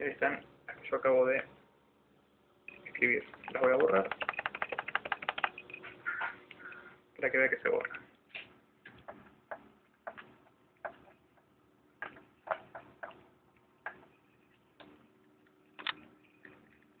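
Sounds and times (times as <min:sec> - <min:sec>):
faint steady hum: 0:00.0 - 0:17.0
laptop keys clicking: 0:02.7 - 0:05.8, 0:15.8 - 0:16.0.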